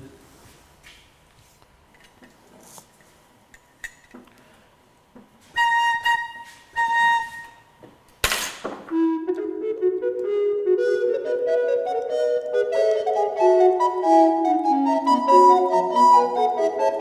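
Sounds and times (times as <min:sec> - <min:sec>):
flute-toned music: 0:05.5 - 0:07.8, 0:08.9 - 0:17.0
organ pipe whistle-like note: 0:05.6 - 0:07.7, 0:08.9 - 0:17.0.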